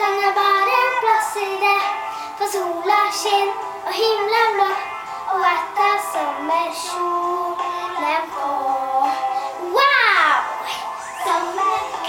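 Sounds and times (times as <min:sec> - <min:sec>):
girl singing: 0:00.0 - 0:12.0.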